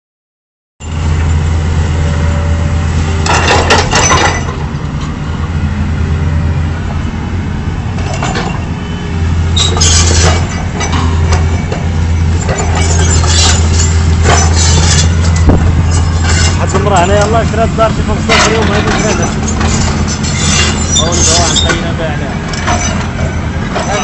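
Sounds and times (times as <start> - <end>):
excavator diesel engine humming: 0.8 - 24.0
cracking and falling rubble: 12.4 - 17.0.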